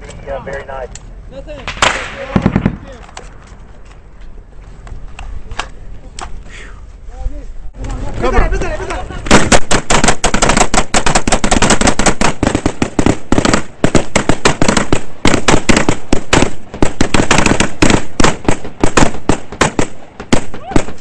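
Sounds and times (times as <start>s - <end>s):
rapid rifle gunfire: 9.3s - 20.9s.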